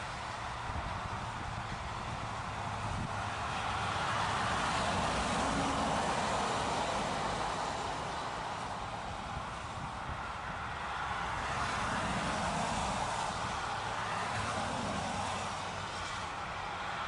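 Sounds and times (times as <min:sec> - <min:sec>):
vehicle passing: 0:01.4 - 0:08.9.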